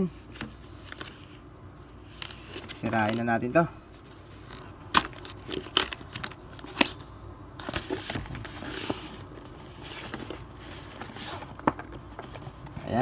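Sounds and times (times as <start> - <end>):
cardboard crackling and scraping: 4.0 - 7.0, 7.6 - 13.0
cardboard tearing snaps: 4.9 - 7.0.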